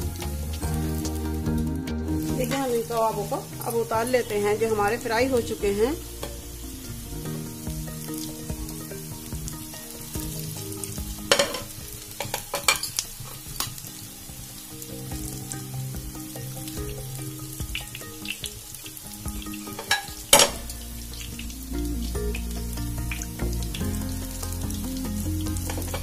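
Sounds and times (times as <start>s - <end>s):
food sizzling in hot oil: 0.0s - 26.0s
metal utensils clinking on pan: 2.3s - 6.5s, 10.2s - 14.0s, 14.8s - 21.5s.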